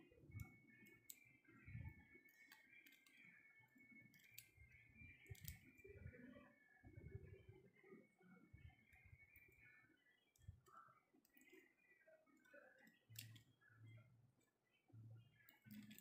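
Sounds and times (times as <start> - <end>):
scissors snipping plastic: 5.3 - 5.7, 15.5 - 16.0.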